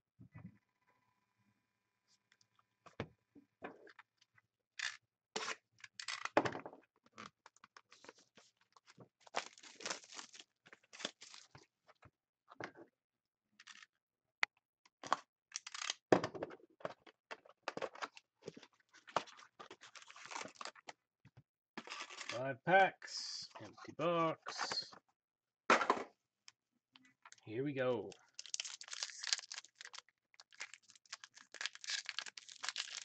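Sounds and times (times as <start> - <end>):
shrink wrap tearing and crinkling: 9.2 - 11.5, 15.5 - 16.0, 19.3 - 20.9, 21.8 - 22.4, 28.2 - 33.0.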